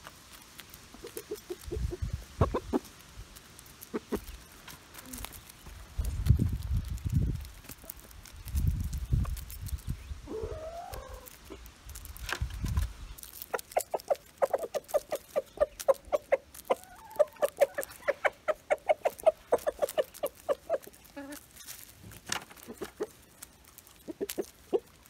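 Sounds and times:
chickens clucking: 0.8 - 3.0, 3.8 - 5.5, 10.2 - 25.0
chicken call: 10.3 - 11.3.

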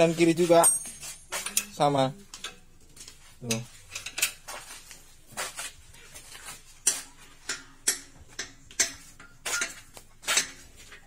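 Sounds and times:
spanner clinking on steel: 0.0 - 2.7, 3.4 - 4.5, 6.8 - 11.0.

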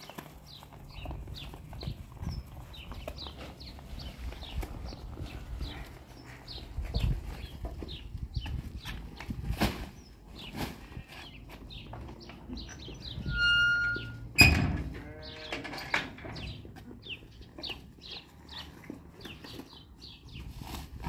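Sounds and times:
small birds chirping: 0.0 - 14.2, 15.0 - 20.9
livestock animal bleating: 14.9 - 15.7.

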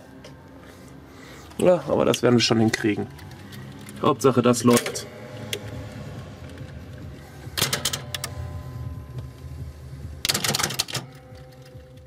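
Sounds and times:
slot machine reels humming: 3.5 - 12.0
mechanical clatter: 7.5 - 8.5, 10.2 - 12.0.

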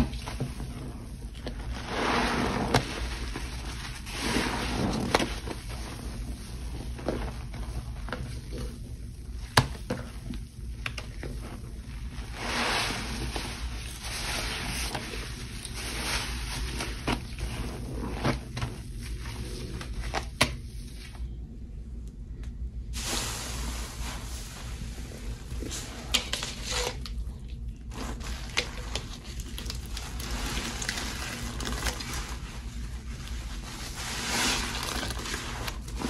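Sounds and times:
soapy water sloshing: 0.0 - 8.1, 11.4 - 20.0.

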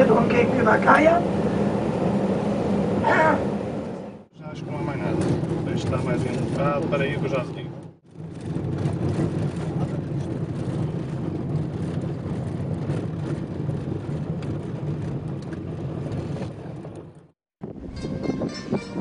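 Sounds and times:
bus engine rumble: 0.0 - 19.0
road noise: 0.0 - 19.0.

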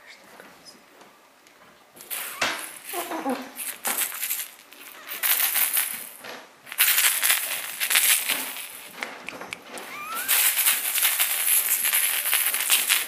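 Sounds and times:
rustling against cloth and wicker: 2.0 - 13.0
kitten crying: 2.1 - 3.4, 9.8 - 10.7.

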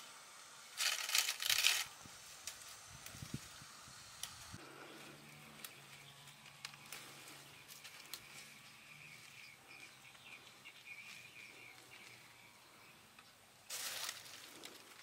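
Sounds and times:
stems snapping: 5.5 - 8.4.

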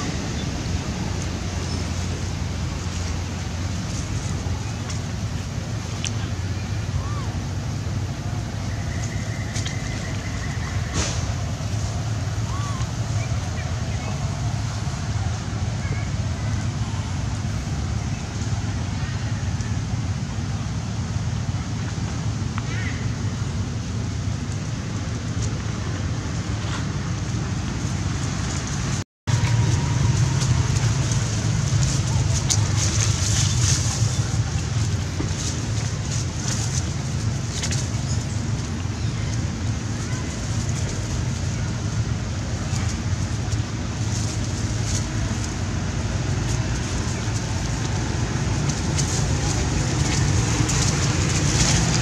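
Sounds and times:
low rumble: 0.0 - 52.0
hiss: 10.8 - 11.6.

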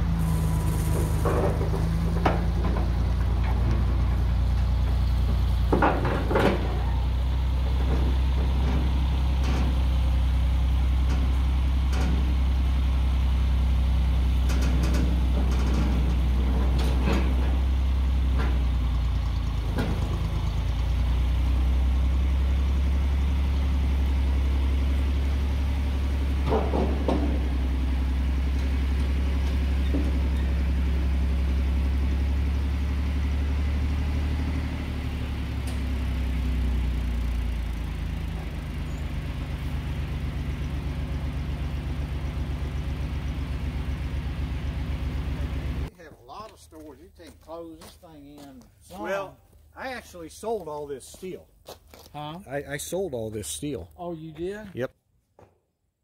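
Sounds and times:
tractor engine running: 0.0 - 47.7
knocks and rattles: 0.2 - 12.6, 14.3 - 20.8, 25.7 - 31.0.

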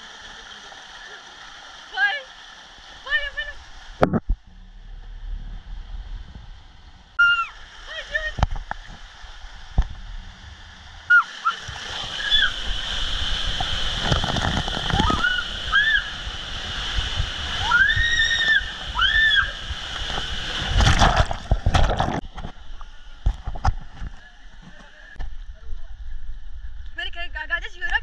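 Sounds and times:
loud water splash: 3.0 - 22.3
water rushing through slide tube: 4.7 - 24.2
short high yells: 7.2 - 7.6, 11.1 - 11.6.

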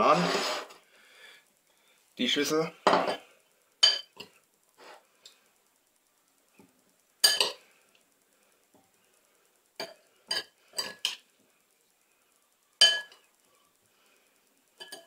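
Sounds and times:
metal spoon clinking on ceramic: 3.8 - 4.2, 7.2 - 7.6, 12.8 - 13.3, 14.8 - 15.0.

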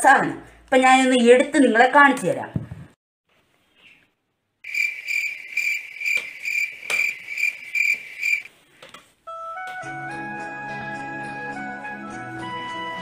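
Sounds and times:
cricket chirping: 4.6 - 8.5
sharp clicks: 6.0 - 7.2.

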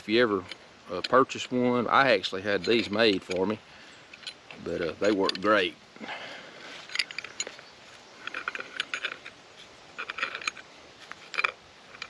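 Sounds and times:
hand auger creaking into wood: 2.5 - 12.0.

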